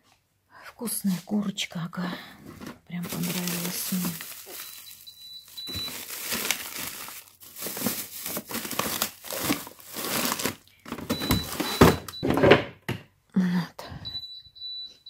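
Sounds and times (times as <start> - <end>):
plastic bags rustling: 2.4 - 12.2
faint high steady beep: 4.6 - 6.0, 11.1 - 12.3, 14.0 - 15.0.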